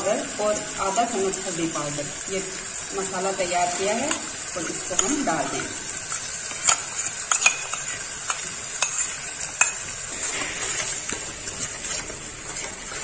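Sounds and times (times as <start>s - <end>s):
spice paste sizzling in oil: 0.0s - 13.0s
ladle scraping a pan: 4.9s - 13.0s.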